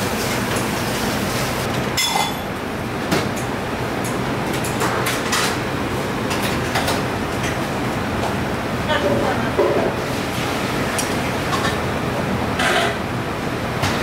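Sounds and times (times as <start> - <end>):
restaurant din: 1.9 - 2.6.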